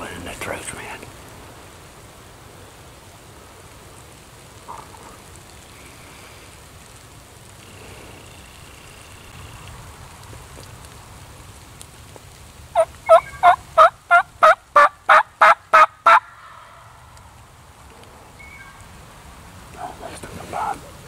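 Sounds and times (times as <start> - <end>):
wild turkey yelping: 4.7 - 5.2, 12.8 - 17.0.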